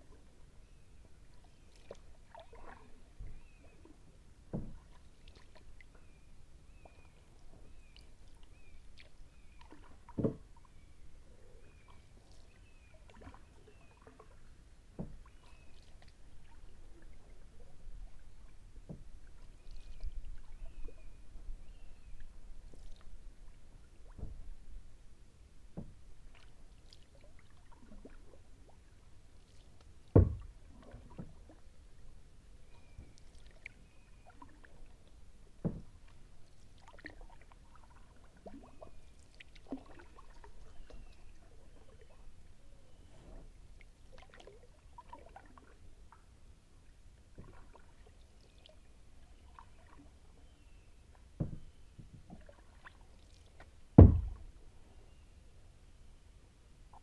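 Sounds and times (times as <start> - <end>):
paddle splashes and drips: 0.0 - 55.0
dull knocks: 30.2 - 30.5, 51.4 - 51.7, 54.0 - 54.5.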